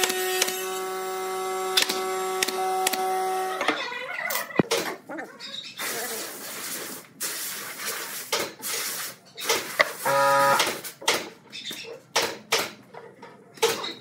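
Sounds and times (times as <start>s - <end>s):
steady buzzing tone: 10.0s - 10.7s.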